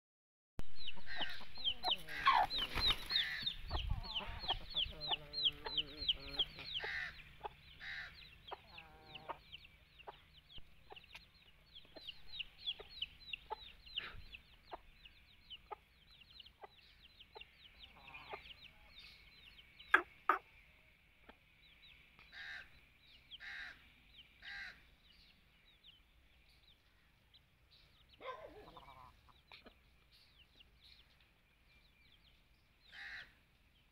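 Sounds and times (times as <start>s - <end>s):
chicks peeping: 0.7s - 33.4s
hen clucking low: 0.8s - 2.6s, 3.2s - 10.2s, 28.2s - 29.8s.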